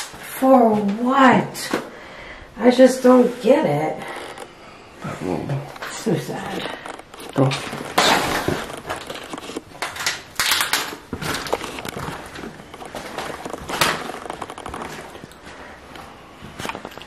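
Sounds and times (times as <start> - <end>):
footsteps crunching over debris: 5.5 - 17.0.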